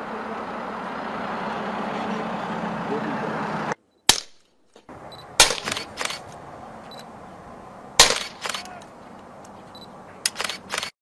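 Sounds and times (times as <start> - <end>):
suppressed gunshots: 4.0 - 4.4, 5.4 - 6.2, 8.0 - 8.7.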